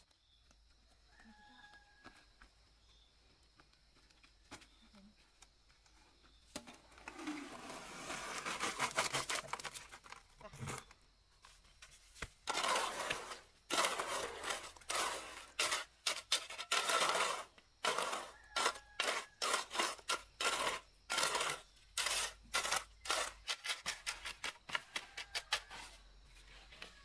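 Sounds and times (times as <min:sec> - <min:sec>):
hand tool scraping: 0:07.0 - 0:10.9, 0:12.2 - 0:27.0.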